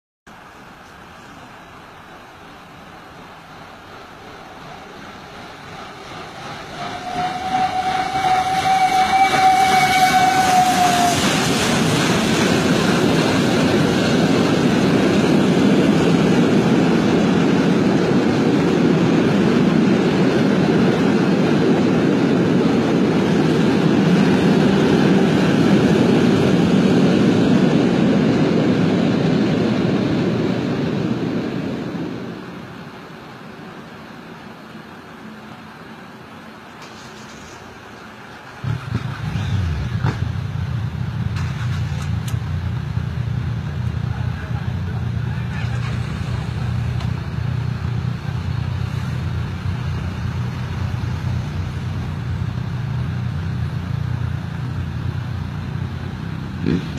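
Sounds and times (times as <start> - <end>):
train rumbling past: 0.3 - 56.9
steam train whistle: 6.7 - 11.6.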